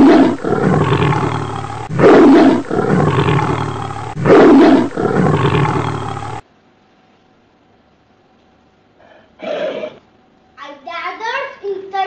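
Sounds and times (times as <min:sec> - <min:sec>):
tiger roars: 0:00.0 - 0:06.4.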